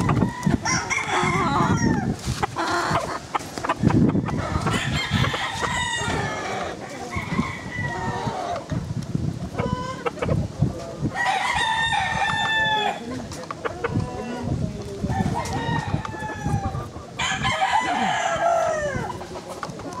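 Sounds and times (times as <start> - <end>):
rooster crowing: 0.0 - 2.2, 4.4 - 8.6, 11.2 - 13.0, 15.1 - 19.1
chickens clucking: 0.0 - 20.0.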